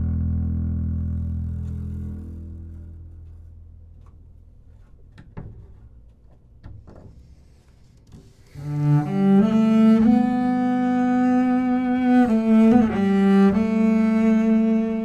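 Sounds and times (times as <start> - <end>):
plucked double bass note: 0.0 - 3.6
bowed double bass notes: 0.0 - 4.9, 8.5 - 15.0.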